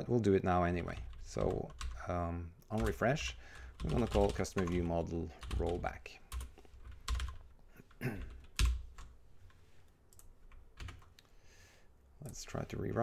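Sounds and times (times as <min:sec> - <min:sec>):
typing on computer keyboard: 0:02.7 - 0:07.5, 0:08.2 - 0:09.1, 0:10.1 - 0:11.2.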